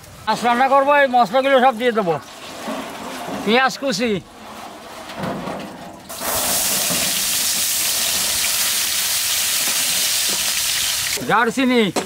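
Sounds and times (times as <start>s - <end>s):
onion sizzling in hot oil: 6.1s - 11.2s.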